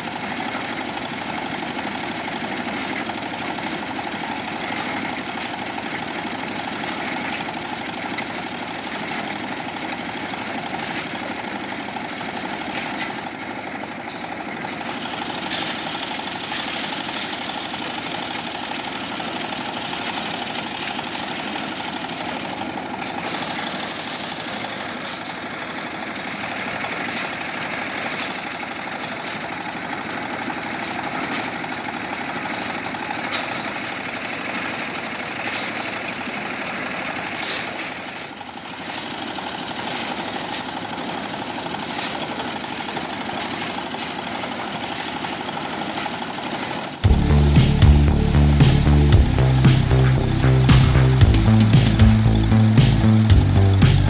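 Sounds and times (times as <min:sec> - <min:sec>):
small engine running steadily: 0:00.0 - 0:54.0
shovels scraping sand and gravel: 0:02.7 - 0:03.1, 0:04.6 - 0:05.6, 0:06.2 - 0:07.5, 0:10.8 - 0:11.2, 0:12.2 - 0:13.5, 0:14.1 - 0:17.3, 0:23.0 - 0:25.4, 0:35.4 - 0:36.0, 0:37.3 - 0:39.2
loud music: 0:47.0 - 0:54.0.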